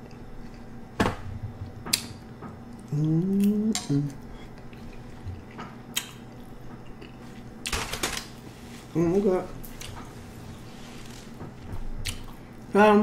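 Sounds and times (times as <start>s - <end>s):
person humming mmm: 2.8s - 4.6s.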